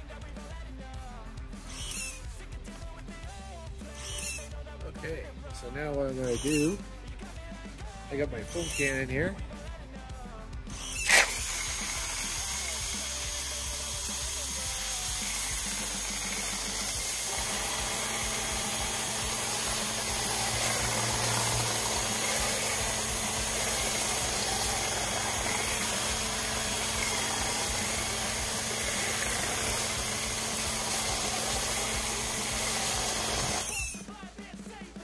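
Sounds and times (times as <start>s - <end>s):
pressure washer running: 11.0s - 34.0s.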